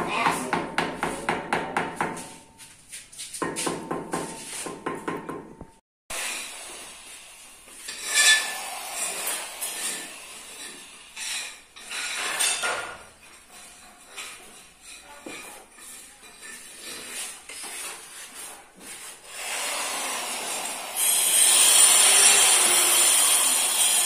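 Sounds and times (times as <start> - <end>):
trowel scraping mortar: 7.7 - 24.0.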